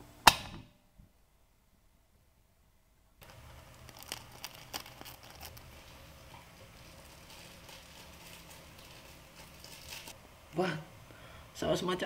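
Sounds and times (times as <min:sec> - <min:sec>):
faint low hum with crackling: 0:00.0 - 0:12.0
scissors snipping foil sachet: 0:03.2 - 0:05.7
foil crinkling: 0:03.2 - 0:10.2.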